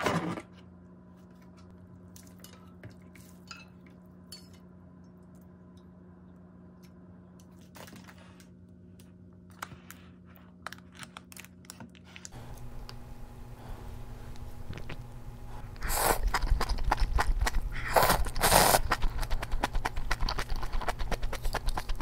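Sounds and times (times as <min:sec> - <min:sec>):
steady low hum: 0:12.2 - 0:22.0.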